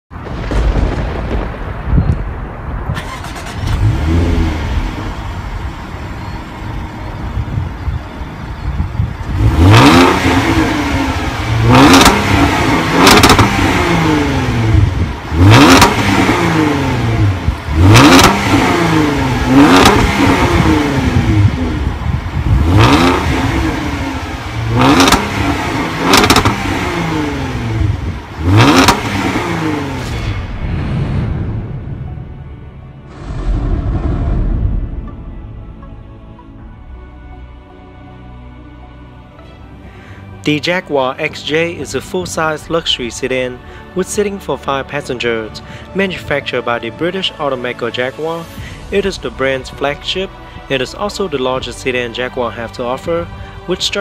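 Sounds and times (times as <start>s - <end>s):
car engine revving: 3.0s - 30.8s.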